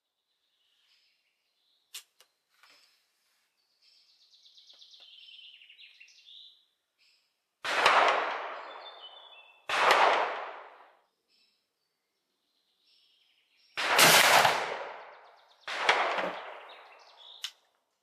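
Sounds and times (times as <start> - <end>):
rifle shots with echo: 7.6 - 11.0, 13.8 - 17.4.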